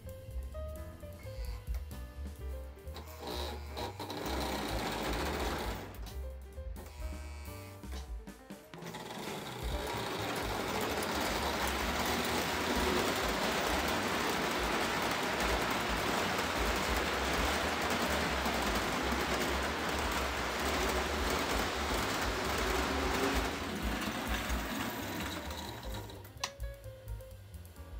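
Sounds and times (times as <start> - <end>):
toy train cars rolling on track: 2.9 - 6.1, 8.8 - 26.5.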